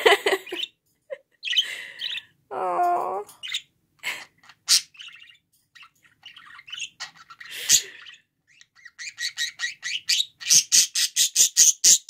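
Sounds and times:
budgerigar chirping: 4.4 - 12.0.

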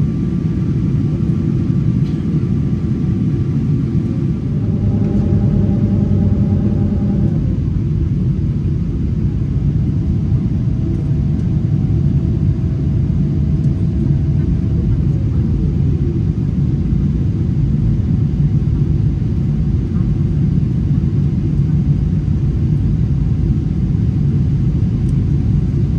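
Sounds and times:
airplane cabin rumble: 0.0 - 25.9
faint whine: 1.1 - 16.6.

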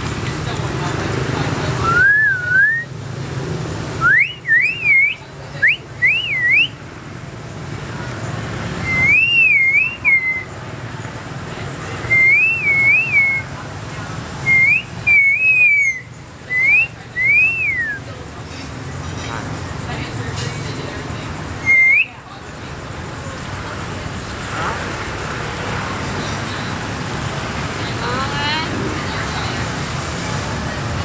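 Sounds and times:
myna bird whistling: 4.0 - 6.8, 8.8 - 10.6, 12.1 - 13.5, 14.4 - 18.0, 21.6 - 22.2.

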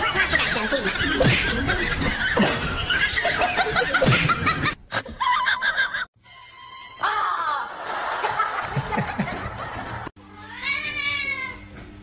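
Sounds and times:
people giggling: 0.0 - 6.1, 7.6 - 10.1.

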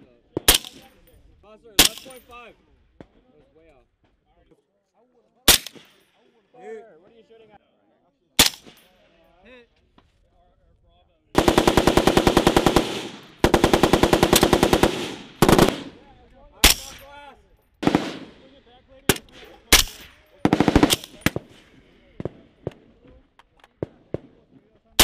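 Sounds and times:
single rifle shots: 0.4 - 1.0, 1.8 - 2.2, 5.5 - 6.0, 8.4 - 9.0, 11.4 - 16.0, 16.6 - 17.1, 17.8 - 22.9
machine-gun bursts: 11.4 - 16.0, 17.8 - 18.4, 19.1 - 21.5.

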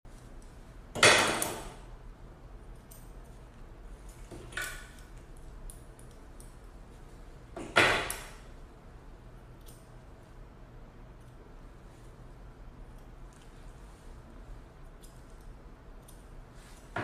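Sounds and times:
metal comb clicks: 9.6 - 9.9.

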